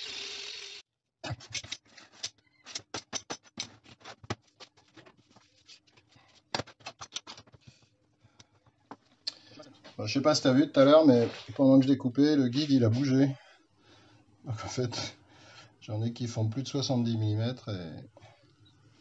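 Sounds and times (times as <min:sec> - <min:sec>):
angle grinder cutting: 0:00.0 - 0:00.8.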